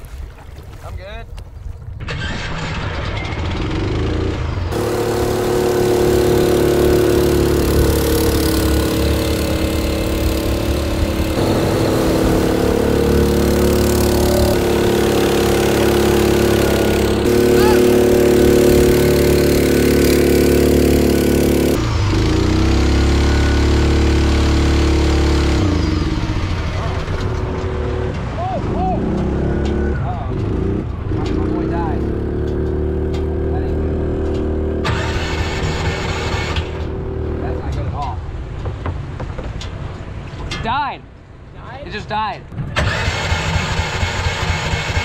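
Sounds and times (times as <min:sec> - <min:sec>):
water rushing and splashing: 0:00.0 - 0:02.3, 0:04.7 - 0:23.2
small gasoline engine running: 0:03.3 - 0:25.8, 0:34.8 - 0:37.0, 0:42.8 - 0:45.0.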